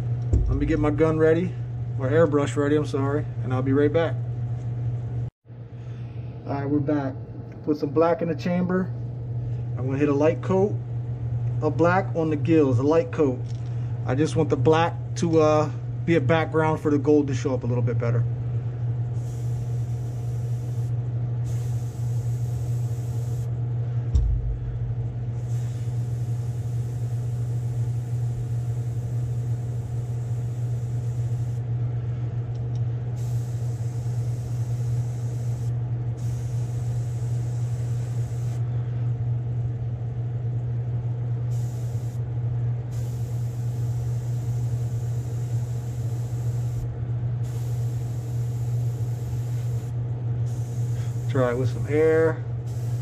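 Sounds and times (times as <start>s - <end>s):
exhaust fan humming: 0.0s - 53.0s
low thump: 0.3s - 0.9s, 24.1s - 25.3s
airbrush hissing: 19.2s - 23.5s, 25.3s - 31.6s, 33.2s - 38.6s, 41.5s - 42.2s, 42.9s - 46.8s, 47.4s - 52.0s, 52.6s - 53.0s.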